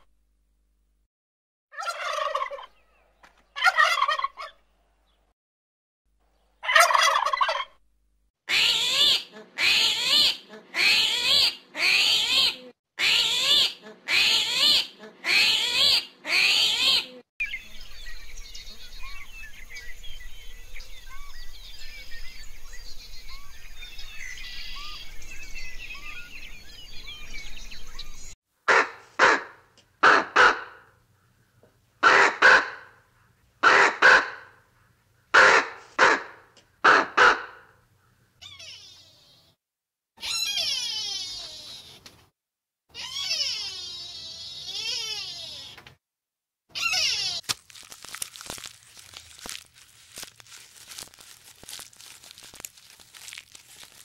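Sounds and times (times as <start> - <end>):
loud animal calls: 38.4 - 39.2, 40.2 - 41.9, 42.9 - 45.8, 46.7 - 54.0
small bird chirps: 46.8 - 54.0.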